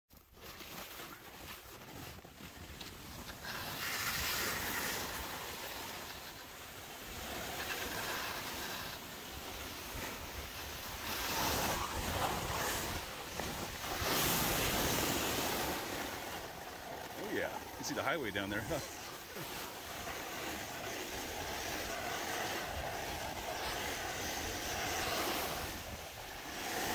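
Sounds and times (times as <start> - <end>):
board sliding over snow: 0.1 - 26.9.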